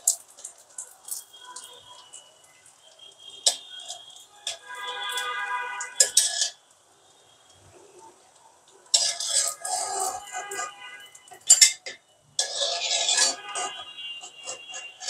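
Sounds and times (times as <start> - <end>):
metal spatula scraping a wok: 3.4 - 6.6, 8.9 - 15.0.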